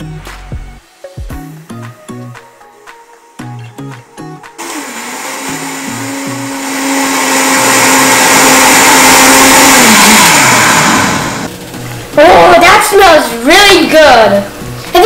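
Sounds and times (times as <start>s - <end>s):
blender running: 4.6s - 11.6s.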